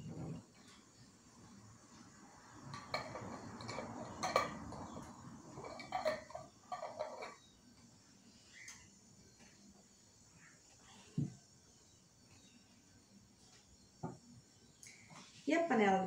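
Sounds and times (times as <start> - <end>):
screw lids twisting on glass jars: 2.7 - 7.5.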